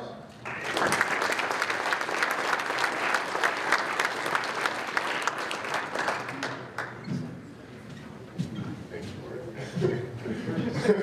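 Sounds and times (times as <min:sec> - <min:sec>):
audience applauding: 0:00.4 - 0:07.1.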